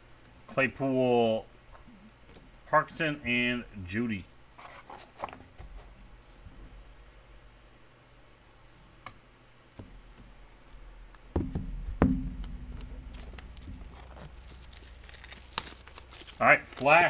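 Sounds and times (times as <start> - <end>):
light rustling of card packs: 4.0 - 9.0, 12.4 - 17.0.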